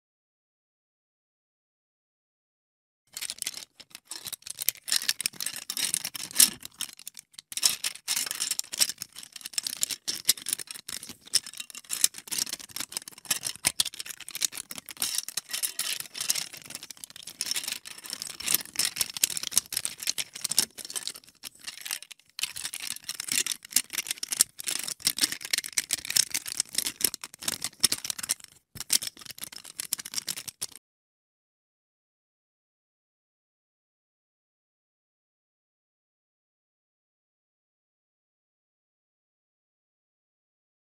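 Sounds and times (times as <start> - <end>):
plastic bricks clicking and rattling: 3.1 - 30.8.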